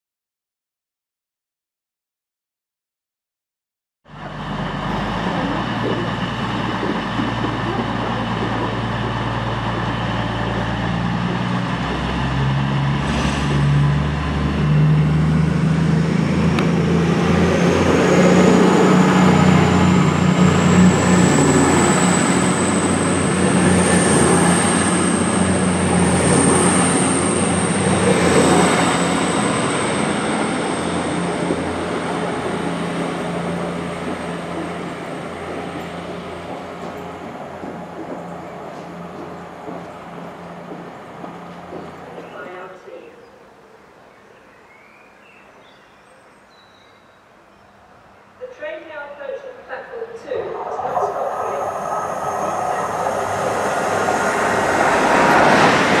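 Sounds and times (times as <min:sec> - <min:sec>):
diesel train engines: 0:04.1 - 0:45.6, 0:47.2 - 0:56.0
high-pitched whine: 0:50.1 - 0:55.8.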